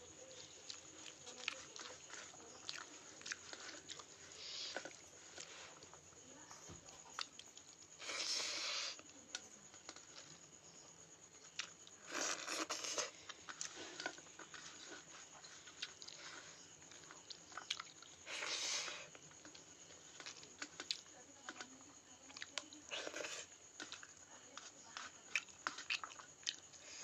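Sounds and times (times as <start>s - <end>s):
wet mixing and chewing: 0.2s - 6.1s, 11.4s - 27.0s.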